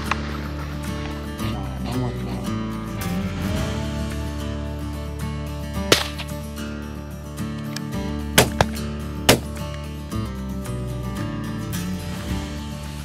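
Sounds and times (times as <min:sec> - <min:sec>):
sharp cracks: 0:00.0 - 0:01.5, 0:05.7 - 0:06.7, 0:07.6 - 0:09.9
background music: 0:00.0 - 0:13.0.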